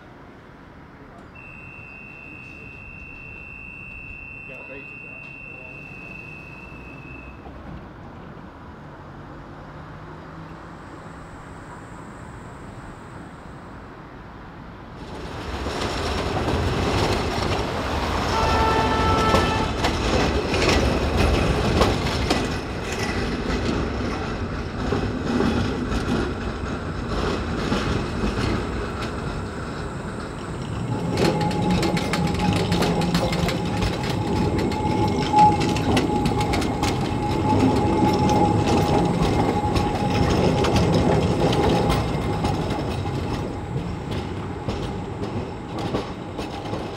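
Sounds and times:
tram rumbling on rails: 0.0 - 46.9
wheel squeal: 1.4 - 7.6, 29.8 - 46.9
wheels clicking over track: 15.0 - 46.9.

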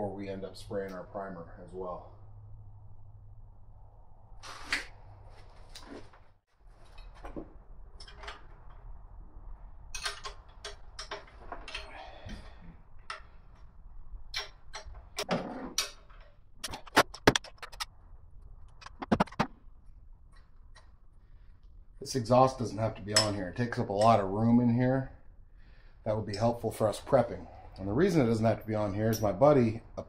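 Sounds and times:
metal tools clinking on exhaust: 9.9 - 13.3, 23.0 - 24.3, 28.4 - 29.6.

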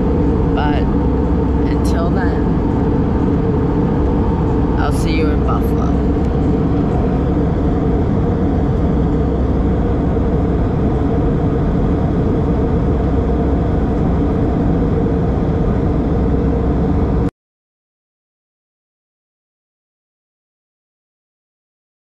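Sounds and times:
jet airliner cabin noise: 0.0 - 17.3.

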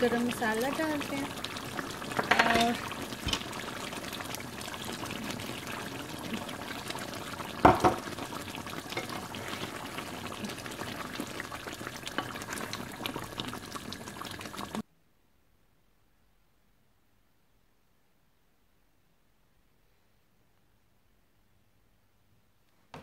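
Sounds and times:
curry bubbling in a pan: 0.0 - 14.8.

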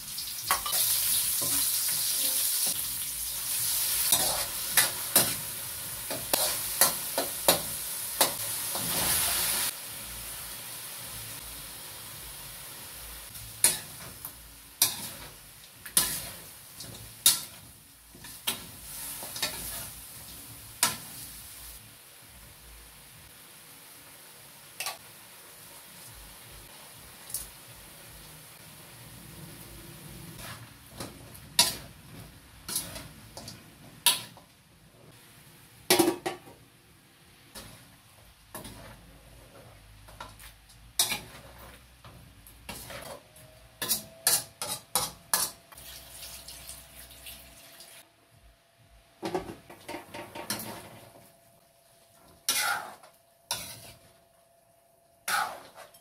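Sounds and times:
metal spoon scraping a wok: 4.0 - 5.4, 14.8 - 20.0, 32.7 - 33.5, 38.5 - 39.0, 41.0 - 45.6, 52.4 - 54.2, 55.2 - 56.0.

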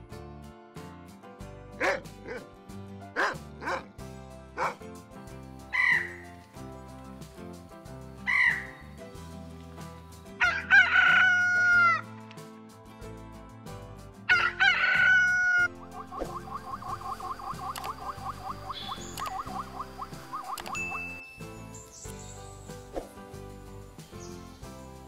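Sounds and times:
background music: 0.0 - 25.0
dog barking: 1.8 - 2.5, 3.2 - 3.9, 4.6 - 4.8
peacock calling: 5.7 - 6.3, 8.2 - 8.8, 14.4 - 21.1
rooster crowing: 10.4 - 12.0, 14.3 - 15.7.

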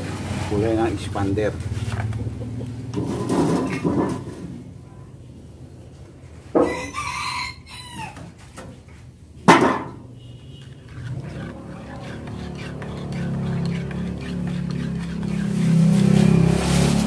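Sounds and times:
rooster crowing: 6.6 - 8.4.

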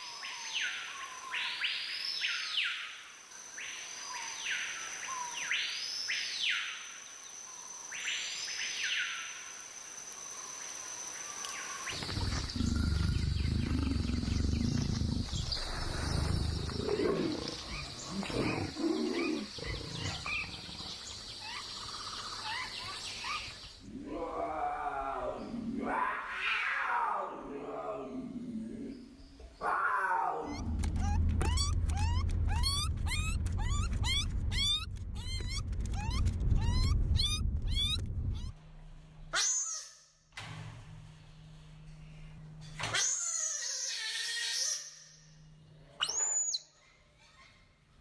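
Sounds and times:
scattered animal calls: 11.9 - 28.0, 28.7 - 38.6
loud deep animal call: 12.0 - 21.0, 23.9 - 38.6
steady high whine: 30.5 - 39.3.

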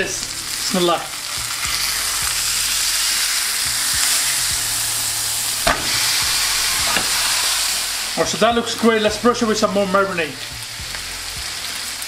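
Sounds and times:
chicken sizzling on griddle pan: 0.0 - 12.0
sharp knock: 5.6 - 7.2.

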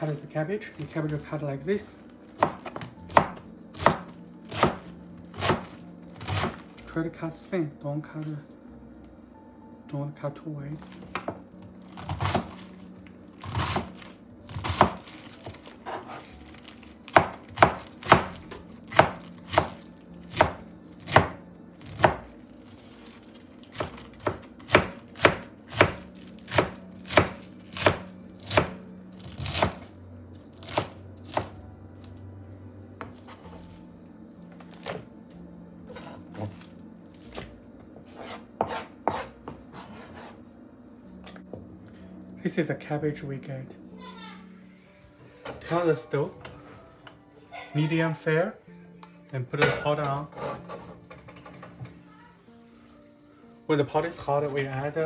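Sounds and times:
knife slicing cabbage: 2.4 - 6.8, 12.0 - 12.7, 13.4 - 22.2, 23.0 - 29.9.

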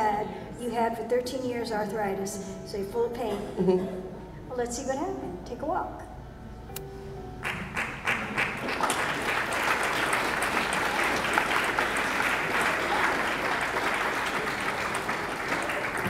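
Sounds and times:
audience applauding: 7.4 - 16.0.

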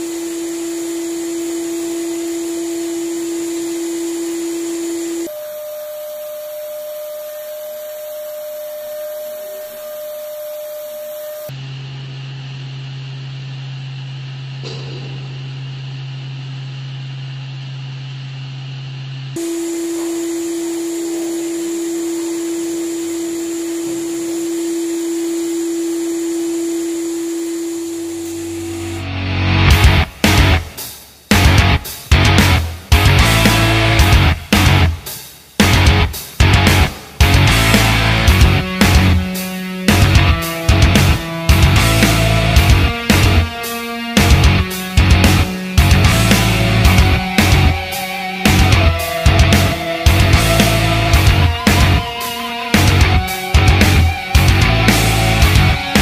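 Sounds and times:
vacuum cleaner whining hum: 0.0 - 56.0.

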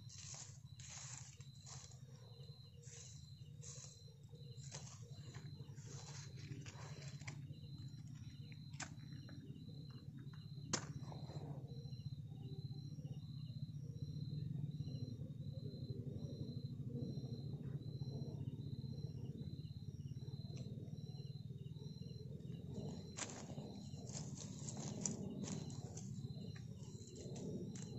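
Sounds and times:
dry leaves and paper rustling: 0.0 - 2.2, 2.8 - 4.0, 4.6 - 7.4, 23.2 - 26.2
night insects trilling: 0.0 - 27.9
rhythmic insect chirp: 0.0 - 27.9.

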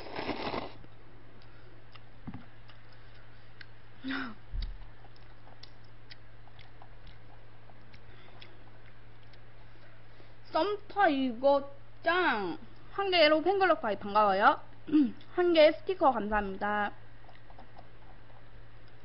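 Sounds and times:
noodles slurped: 0.0 - 0.8
chewing with wet mouth clicks: 1.4 - 4.0, 4.6 - 10.0, 17.2 - 19.0.

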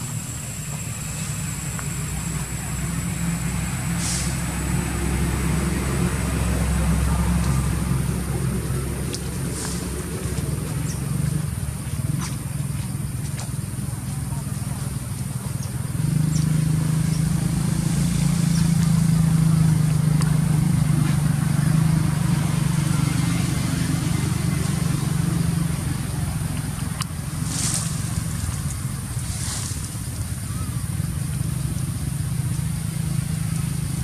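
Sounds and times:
vehicle engine running: 0.0 - 34.0
brief high hissing: 4.0 - 4.4.

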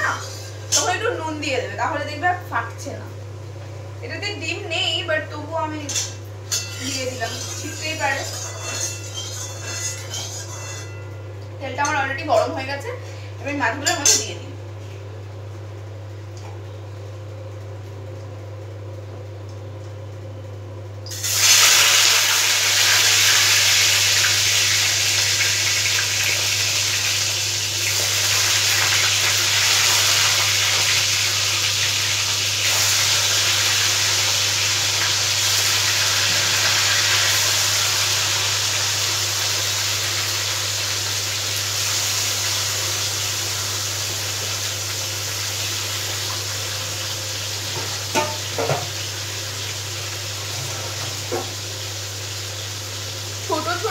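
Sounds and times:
fish sizzling in hot oil: 21.1 - 53.9.

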